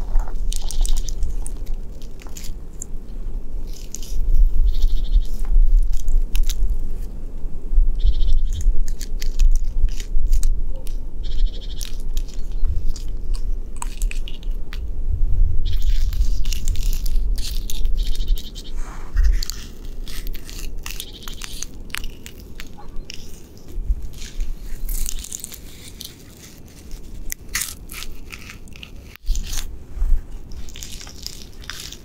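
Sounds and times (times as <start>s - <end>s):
gloved hand scratching tree bark: 0.0s - 3.0s, 3.6s - 7.1s, 8.2s - 14.6s, 15.6s - 32.0s
bark flakes crackling: 0.0s - 7.0s, 8.0s - 14.9s, 15.6s - 32.0s.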